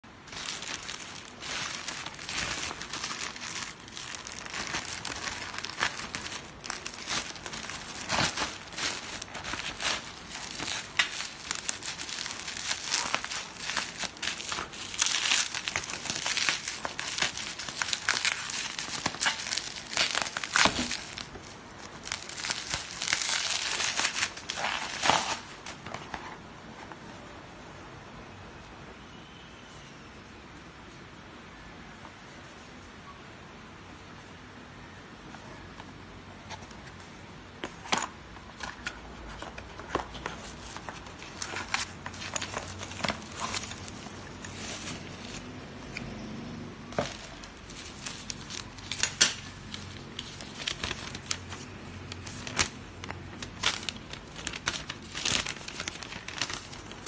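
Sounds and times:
plastic packaging crinkling: 0:00.1 - 0:26.3, 0:37.7 - 0:45.6, 0:46.9 - 0:57.0
plastic ripping: 0:00.2 - 0:26.2, 0:38.6 - 0:45.5, 0:46.9 - 0:57.0.

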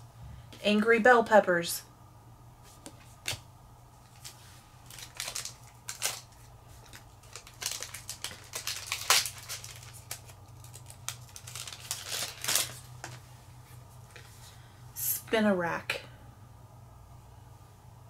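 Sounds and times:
foil wrapper crinkling and tearing: 0:04.0 - 0:13.2.

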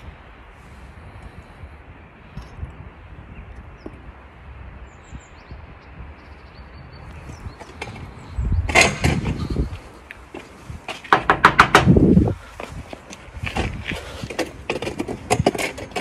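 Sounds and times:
outdoor background noise: 0:00.0 - 0:16.0
phone rustling and rumble: 0:07.3 - 0:16.0.

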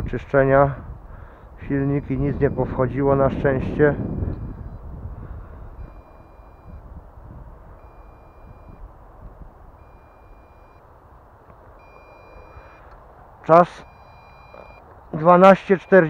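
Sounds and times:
wind rumble on microphone: 0:00.0 - 0:10.8
electronic warning beeps: 0:01.6 - 0:04.9, 0:05.7 - 0:06.9, 0:07.8 - 0:08.9, 0:09.8 - 0:10.9, 0:11.8 - 0:12.9, 0:13.5 - 0:16.0.

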